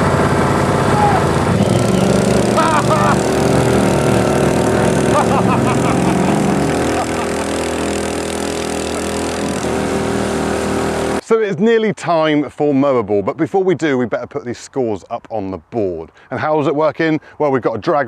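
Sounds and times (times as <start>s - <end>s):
ride-on lawn mower engines: 0.0s - 11.2s.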